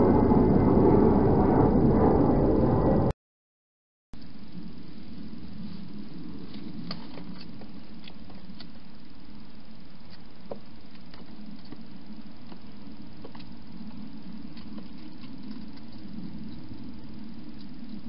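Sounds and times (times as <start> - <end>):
steady low hum: 0.0 - 3.1, 4.2 - 18.0.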